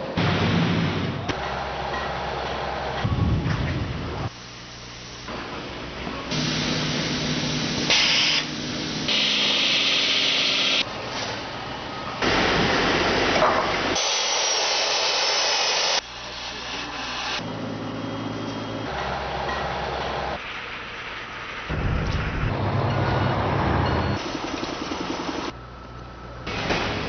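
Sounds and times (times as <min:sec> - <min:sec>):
machine hum: 0:02.3 - 0:10.9
hissing bursts: 0:06.3 - 0:10.8.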